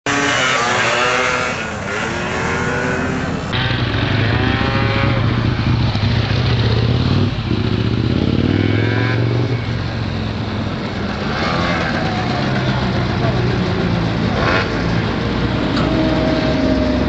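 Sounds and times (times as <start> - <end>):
scooter engine revving: 0.1 - 17.0.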